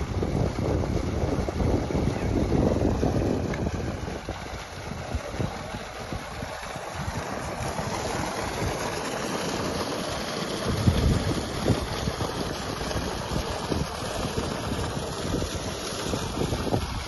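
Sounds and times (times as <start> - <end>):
water gushing from a pipe: 0.0 - 17.0
wind buffeting microphone: 0.0 - 17.0.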